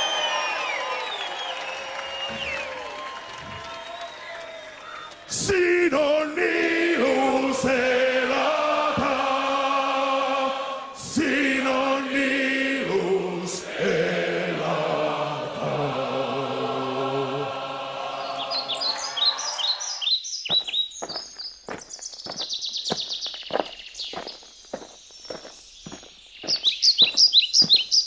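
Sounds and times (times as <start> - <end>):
choir singing held chords: 5.4 - 20.0
birds chirping: 18.1 - 28.0.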